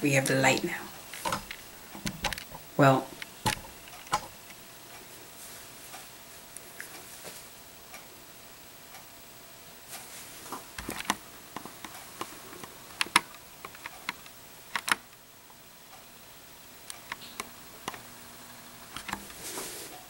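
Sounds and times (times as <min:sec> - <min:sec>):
small clicks and ticks: 0:03.2 - 0:05.0, 0:10.8 - 0:16.1, 0:16.9 - 0:18.1.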